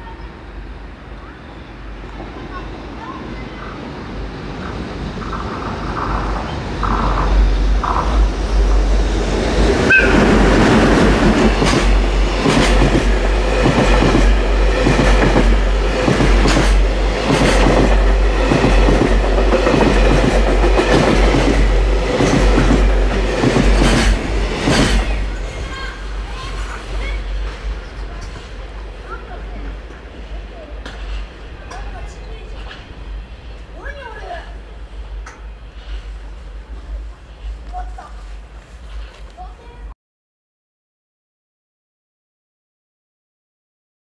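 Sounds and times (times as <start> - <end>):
freight train rumbling past: 0.0 - 39.9
wheels clacking over rail joints: 4.6 - 30.0.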